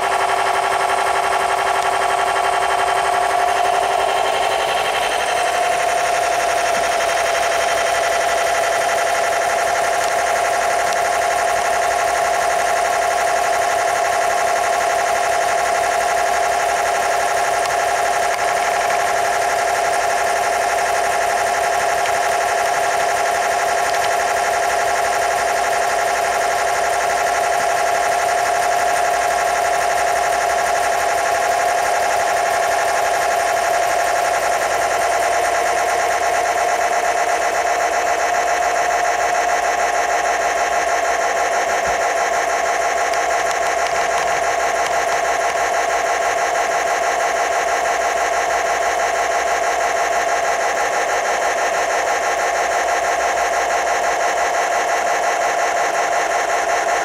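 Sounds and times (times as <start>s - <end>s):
model locomotive motor whine: 0.0s - 57.0s.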